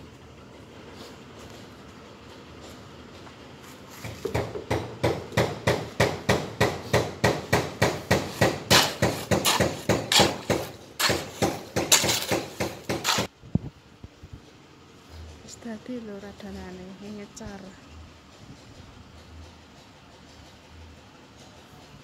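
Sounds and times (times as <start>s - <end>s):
hoe scraping cement in wheelbarrow: 8.2s - 13.3s.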